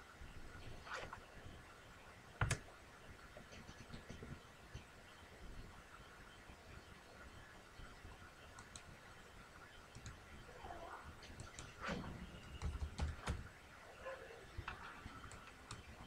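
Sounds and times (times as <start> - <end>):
computer mouse clicks: 2.4 - 2.7, 8.5 - 8.9, 9.9 - 10.2, 11.2 - 11.8, 14.6 - 16.0.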